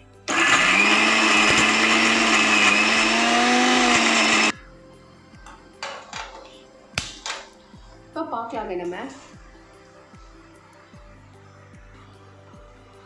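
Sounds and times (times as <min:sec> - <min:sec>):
mixer grinder motor running: 0:00.3 - 0:04.5.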